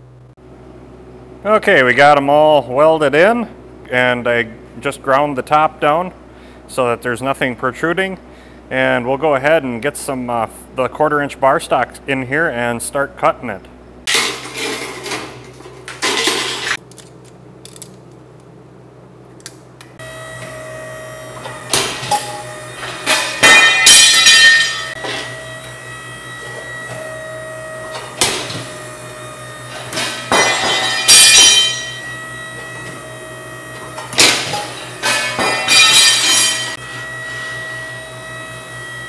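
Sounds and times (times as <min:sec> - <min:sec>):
steel cut and clank: 0:14.1 - 0:16.8, 0:20.0 - 0:39.0
machine motor humming: 0:19.4 - 0:39.0.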